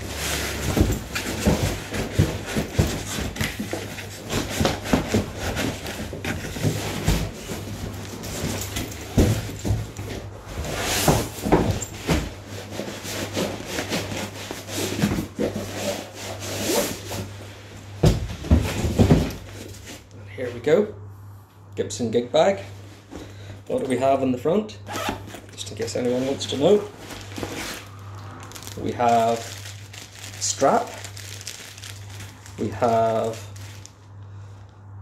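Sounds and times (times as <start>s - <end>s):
fabric rubbing against cardboard: 10.1s - 17.7s.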